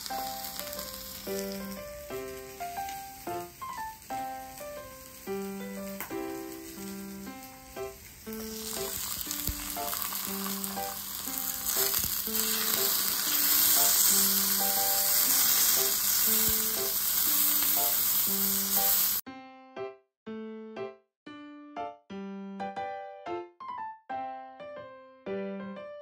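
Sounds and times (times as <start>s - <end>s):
beef sizzling in oil: 0.0s - 19.2s
light keyboard music: 0.0s - 26.0s.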